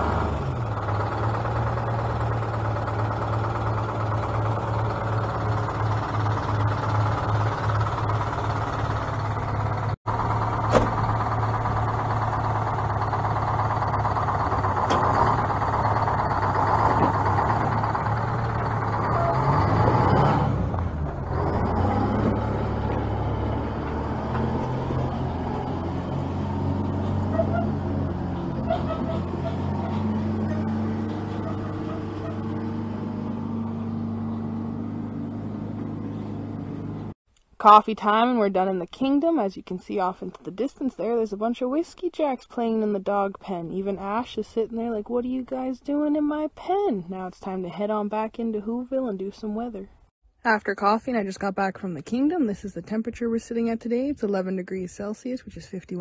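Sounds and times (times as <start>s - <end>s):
truck diesel engine idling: 0.0s - 37.2s.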